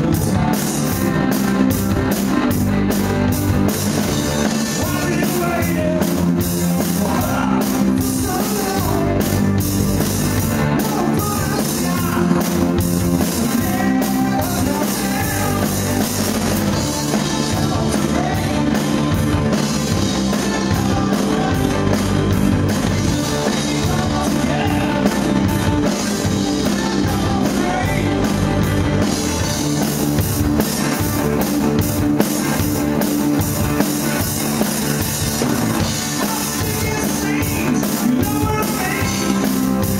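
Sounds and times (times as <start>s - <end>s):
distorted electric guitars: 0.0s - 39.9s
drum kit beat: 0.0s - 39.9s.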